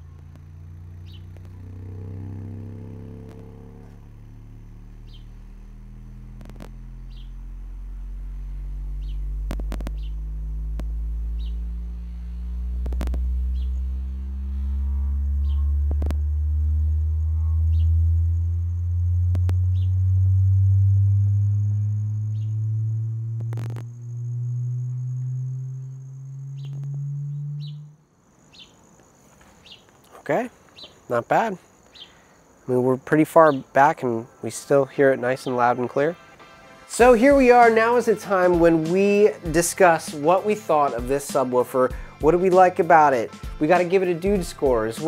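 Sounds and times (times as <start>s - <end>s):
rising deep bass tone: 0.0s - 28.0s, 37.0s - 41.3s, 41.9s - 45.0s.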